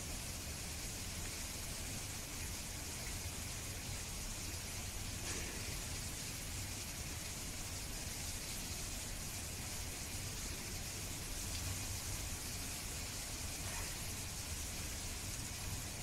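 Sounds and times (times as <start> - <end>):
steady background hiss: 0.0 - 16.0.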